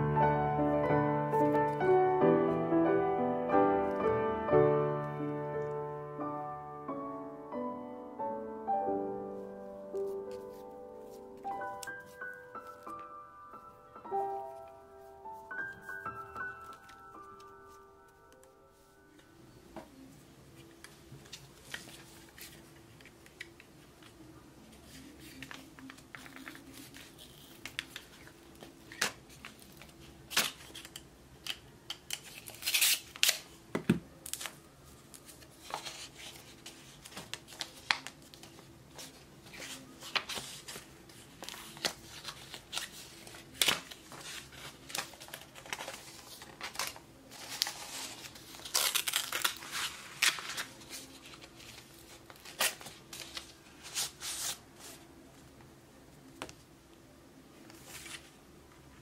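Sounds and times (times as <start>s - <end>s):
paper crinkling and ripping: 24.8s - 33.4s, 35.2s - 55.0s.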